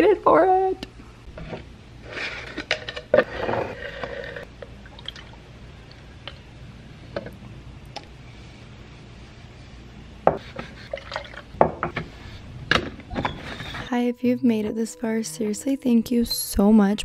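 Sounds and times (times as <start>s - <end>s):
liquid trickling into a cup: 4.8s - 6.4s.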